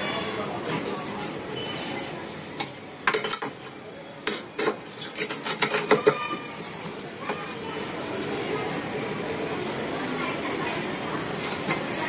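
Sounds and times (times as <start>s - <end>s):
spanner scraping metal: 4.6s - 6.3s.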